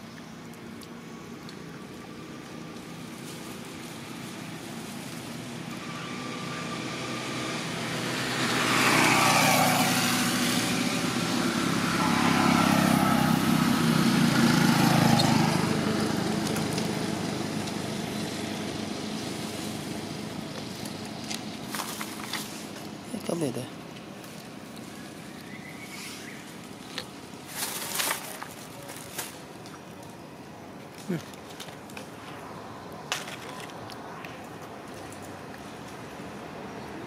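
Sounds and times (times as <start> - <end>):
road traffic passing: 0.0 - 37.0
motorbike engine: 5.8 - 22.6.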